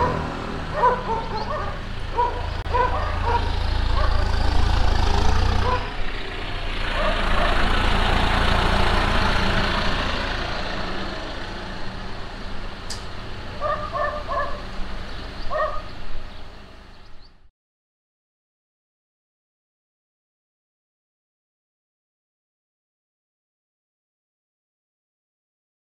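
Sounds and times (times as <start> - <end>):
dog barking: 0.0 - 4.4, 5.6 - 6.0, 6.9 - 7.7, 13.6 - 14.7, 15.5 - 15.9
vehicle passing: 0.0 - 17.3.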